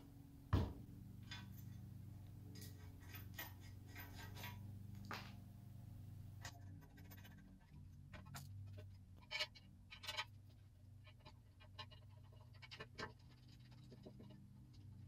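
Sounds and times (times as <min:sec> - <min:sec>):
knocks on wooden workbench: 0:00.5 - 0:00.8
clicks and scrapes of metal parts: 0:01.2 - 0:05.4, 0:06.4 - 0:15.0.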